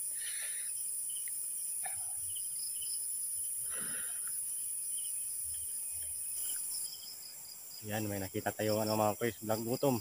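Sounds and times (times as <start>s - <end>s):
night insects chorus: 0.0s - 10.0s.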